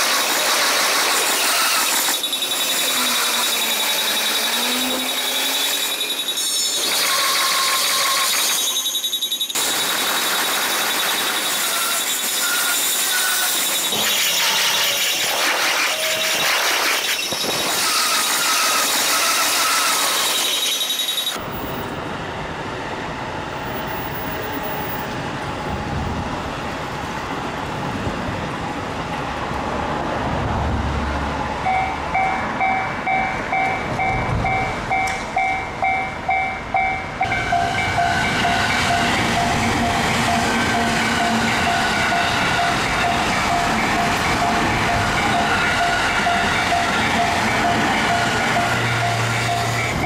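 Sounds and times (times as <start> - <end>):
crossing warning bell ringing: 1.5 - 10.0, 11.4 - 15.2, 17.4 - 21.6, 31.6 - 50.0
train wheels clattering on rails: 31.7 - 50.0.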